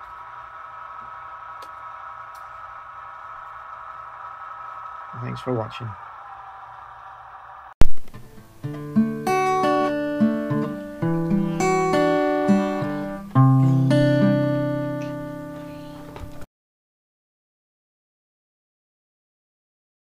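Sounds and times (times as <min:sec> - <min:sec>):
guitar music jingle: 0:07.8 - 0:16.4.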